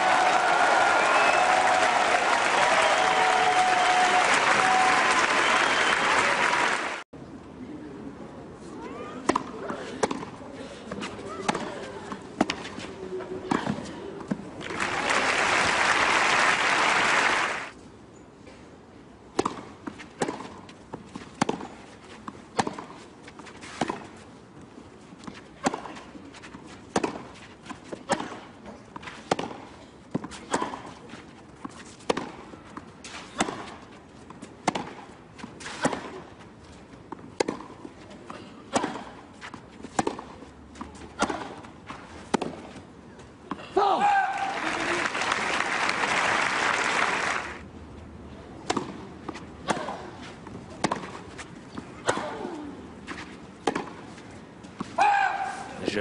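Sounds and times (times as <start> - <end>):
crowd applause: 0.0 - 7.0, 14.6 - 17.7, 44.3 - 47.6
racket hitting tennis ball: 9.2 - 14.4, 19.3 - 24.2, 25.2 - 36.4, 37.1 - 42.8, 48.6 - 55.7.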